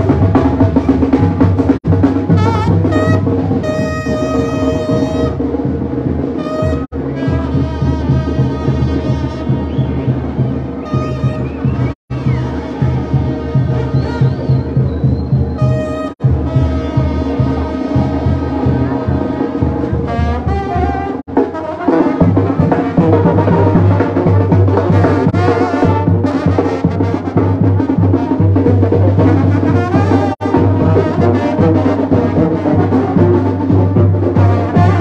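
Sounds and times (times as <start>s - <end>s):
brass band music: 0.0s - 35.0s.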